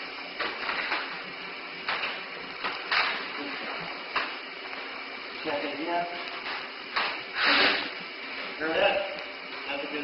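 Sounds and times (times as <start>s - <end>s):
breaths rushing through gas mask: 7.2s - 8.3s.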